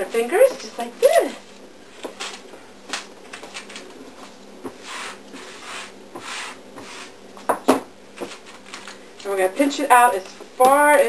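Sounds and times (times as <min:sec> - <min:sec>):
parchment paper rustling: 0:00.1 - 0:07.2, 0:08.2 - 0:09.0.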